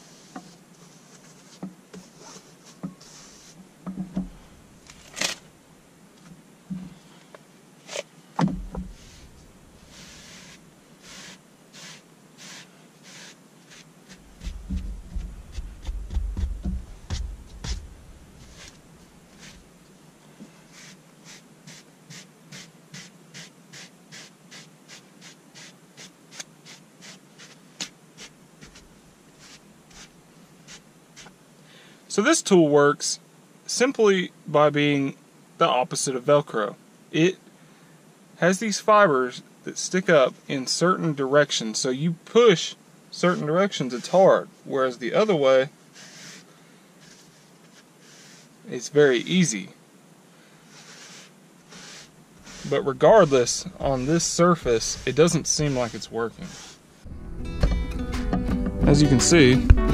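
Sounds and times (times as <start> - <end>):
brush scraping fabric: 0.0 - 3.6, 8.7 - 19.7, 20.5 - 31.4, 43.2 - 44.4, 45.2 - 49.2, 50.6 - 57.1
low rumble: 14.2 - 18.6, 57.1 - 58.0.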